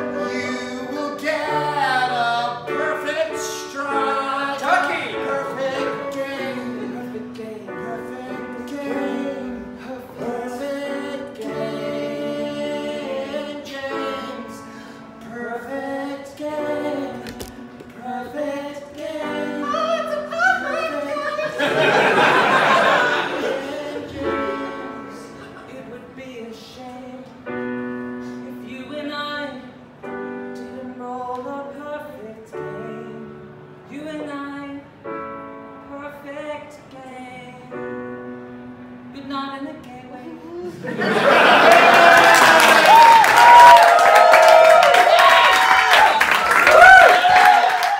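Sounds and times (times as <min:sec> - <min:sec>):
man singing: 0:00.0 - 0:21.4
keyboard accompaniment: 0:00.0 - 0:46.5
audience noise: 0:20.0 - 0:25.9, 0:40.8 - 0:47.9.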